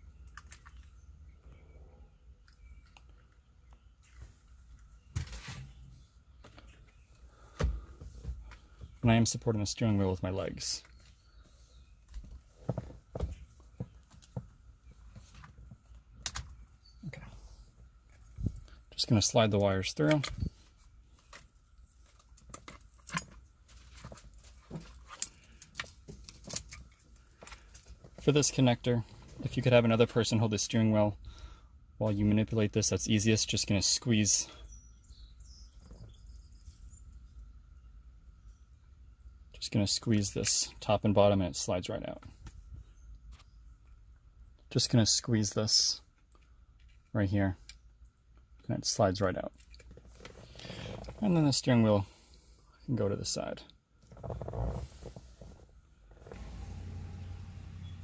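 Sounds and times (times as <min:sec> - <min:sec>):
low steady background noise: 0:00.0 - 0:58.0
faint clicks and handling noise: 0:00.1 - 0:01.6, 0:02.4 - 0:05.5, 0:19.5 - 0:30.2, 0:46.1 - 0:48.6, 0:49.5 - 0:51.2.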